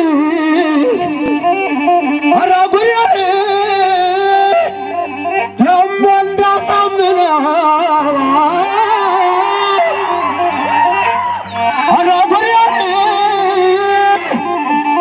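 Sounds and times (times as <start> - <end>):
keyboard and bass accompaniment: 0.0 - 15.0
man chanting into a microphone: 2.3 - 9.9, 11.8 - 15.0.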